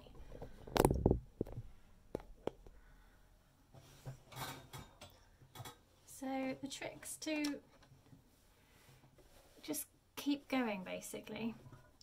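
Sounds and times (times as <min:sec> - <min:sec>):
soft rustles: 0:06.8 - 0:09.9.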